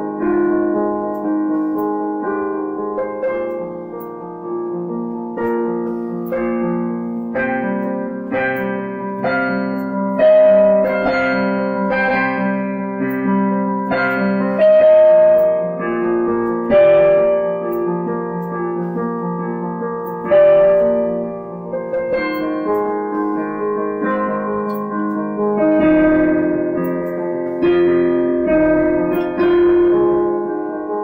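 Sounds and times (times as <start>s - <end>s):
piano music: 0.0s - 31.0s.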